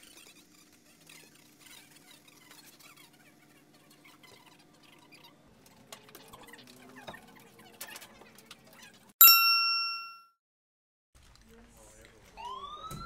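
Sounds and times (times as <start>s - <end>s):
loud bright ding: 9.2s - 10.2s.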